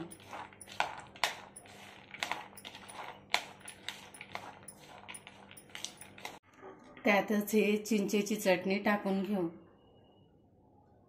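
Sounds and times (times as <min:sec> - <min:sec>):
hand mixing food in plastic bowl: 0:00.0 - 0:06.4.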